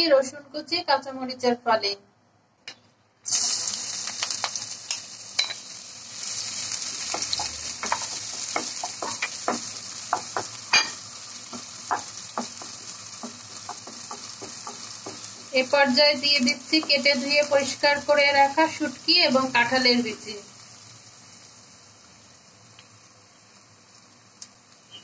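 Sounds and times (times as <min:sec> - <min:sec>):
food sizzling in hot oil: 0:03.2 - 0:25.0
spatula scraping and tapping pan: 0:07.0 - 0:17.2.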